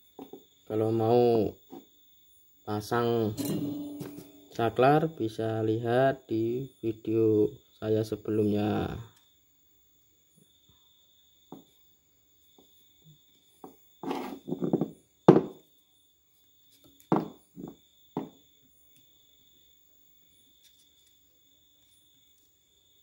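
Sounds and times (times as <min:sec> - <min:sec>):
faint high-pitched tone: 0:03.0 - 0:05.9
knocks and rustles of components: 0:03.3 - 0:04.8.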